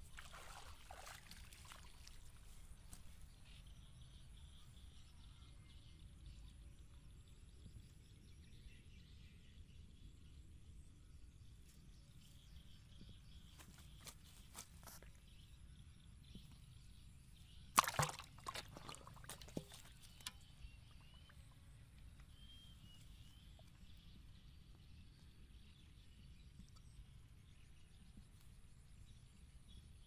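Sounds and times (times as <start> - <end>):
fish knocking in plastic tub: 17.8 - 20.3
fish flopping against tub: 17.8 - 20.5.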